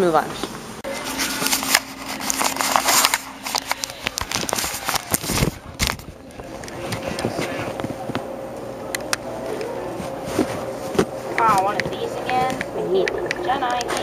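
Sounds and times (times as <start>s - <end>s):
microphone handling noise: 3.2s - 8.3s.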